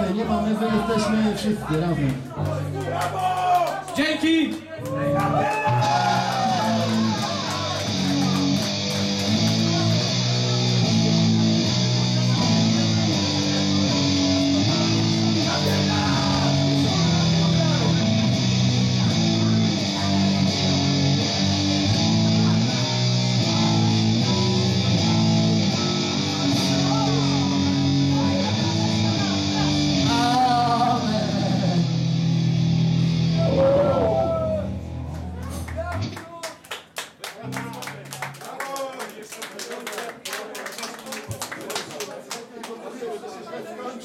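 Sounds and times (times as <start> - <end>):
rock music with electric guitar: 5.0 - 36.2.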